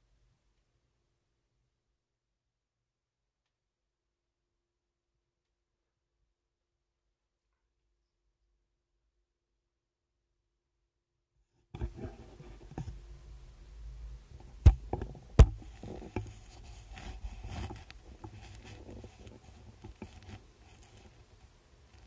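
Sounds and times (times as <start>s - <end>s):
sharp knocks: 14.6s - 15.7s
hair rubbing against camera: 15.6s - 22.0s.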